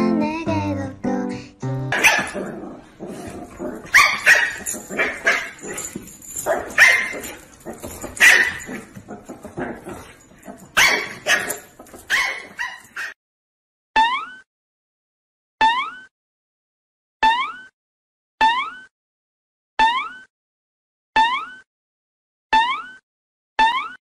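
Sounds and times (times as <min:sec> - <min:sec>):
puppy yapping: 0:02.0 - 0:02.4, 0:03.7 - 0:09.8, 0:10.8 - 0:13.2.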